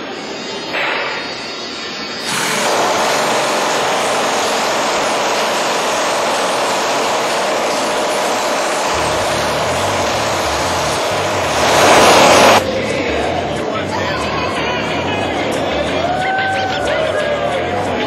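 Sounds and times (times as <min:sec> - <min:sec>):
low pulsing: 0:00.0 - 0:13.9
loud engine-like drone: 0:00.0 - 0:16.0.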